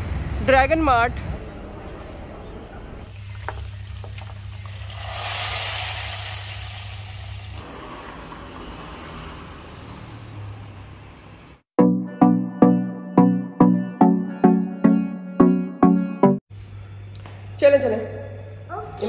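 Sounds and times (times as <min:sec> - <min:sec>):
hot oil sizzling in liquid: 0:03.0 - 0:07.6.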